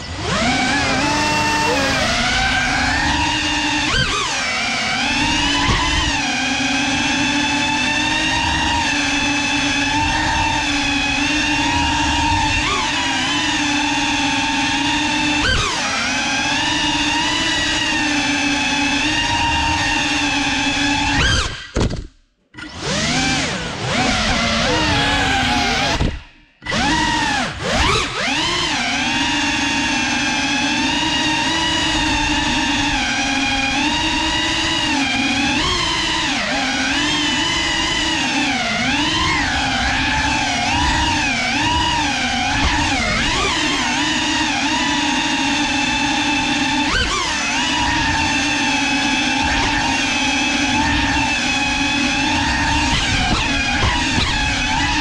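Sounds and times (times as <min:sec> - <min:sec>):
drone propellers whining: 0:00.0 - 0:05.6, 0:22.9 - 0:29.2
drone motors whining: 0:00.0 - 0:06.2, 0:22.8 - 0:55.0.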